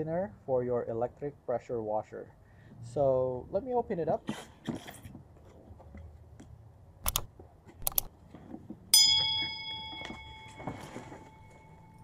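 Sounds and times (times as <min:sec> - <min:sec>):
sharp mouse clicks: 0:07.0 - 0:08.1
notification bell ding: 0:09.0 - 0:12.0.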